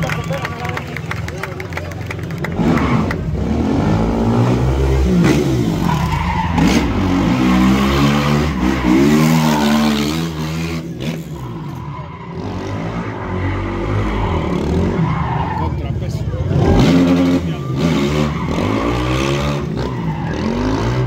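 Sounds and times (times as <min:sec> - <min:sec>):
tyres skidding on asphalt: 0:00.0 - 0:21.0
quad bike engine revving: 0:02.4 - 0:11.6, 0:16.4 - 0:21.0.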